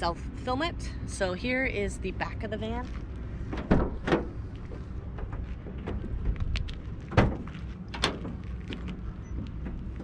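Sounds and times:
steady low rumble: 0.0 - 10.0
van door latch clicks and knocks: 3.6 - 4.3.

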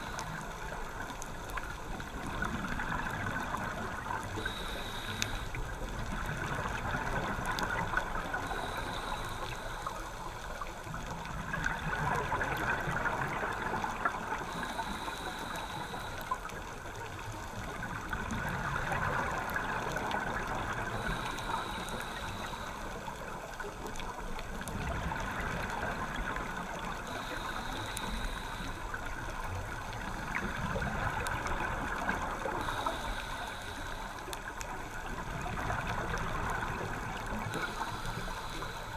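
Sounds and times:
regulator inhale hiss: 0.0 - 1.3, 3.0 - 6.6, 7.2 - 11.0, 13.1 - 17.8, 19.6 - 24.1, 26.1 - 30.6, 31.9 - 34.7, 36.5 - 38.9
exhaled bubbles gurgling: 0.0 - 38.9.

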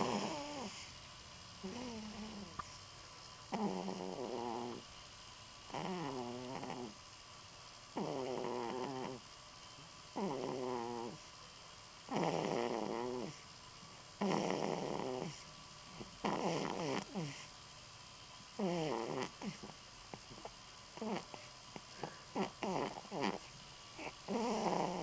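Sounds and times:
baby snoring: 0.0 - 0.9, 1.6 - 2.8, 3.5 - 4.9, 5.7 - 7.0, 8.0 - 9.2, 10.1 - 11.3, 12.1 - 13.4, 14.2 - 17.5, 18.6 - 25.0
baby snuffling: 0.0 - 0.9, 16.0 - 17.5, 18.6 - 25.0.

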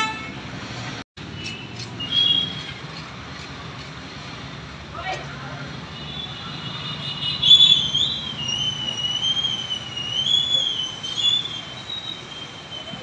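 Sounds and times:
high wavering whistle: 7.4 - 13.0.

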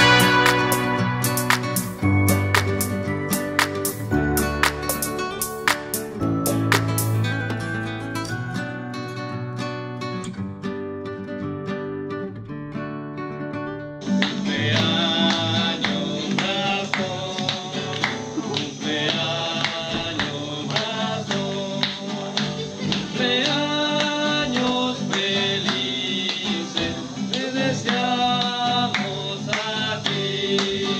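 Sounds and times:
person singing: 0.0 - 6.2, 14.0 - 30.9
acoustic guitar strumming: 0.0 - 30.9.

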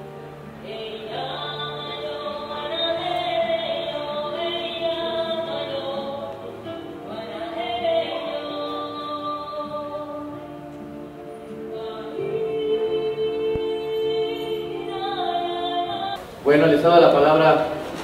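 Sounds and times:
choir-like background music: 0.0 - 16.3.

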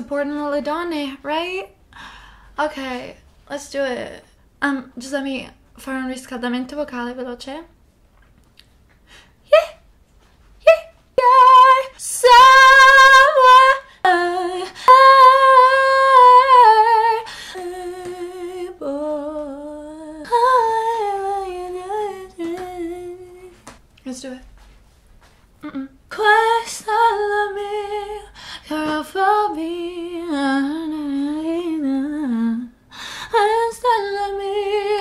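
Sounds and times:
woman vocal warm-up singing: 10.6 - 24.4, 25.6 - 35.0.

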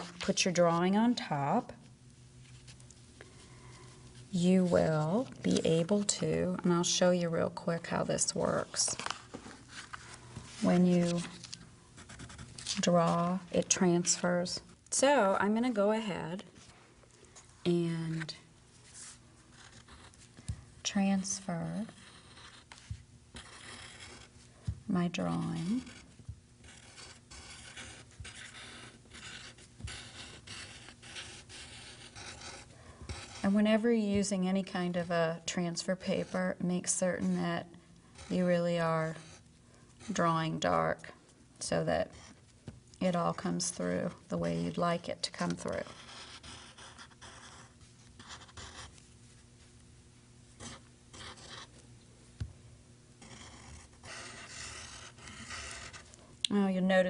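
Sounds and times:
pencil scratching on paper: 12.0 - 13.4, 21.2 - 33.8, 35.8 - 37.6, 38.2 - 40.7, 45.4 - 49.0, 50.6 - 51.7, 53.2 - 56.1.

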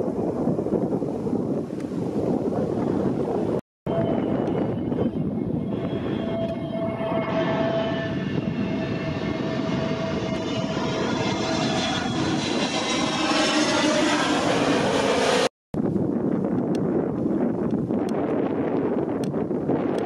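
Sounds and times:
jet engine high whine: 0.0 - 15.9
jet engine rumble: 0.0 - 20.0.

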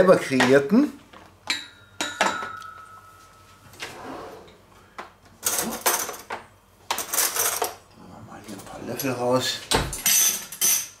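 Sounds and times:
thin ringing tone: 1.6 - 3.7.

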